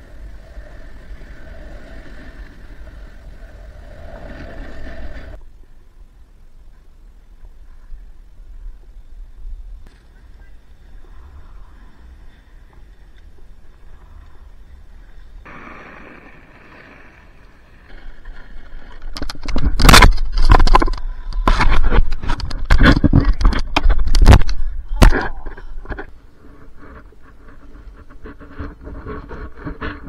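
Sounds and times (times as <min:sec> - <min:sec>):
snowboard scraping over snow: 0:00.0 - 0:05.4, 0:10.6 - 0:19.0.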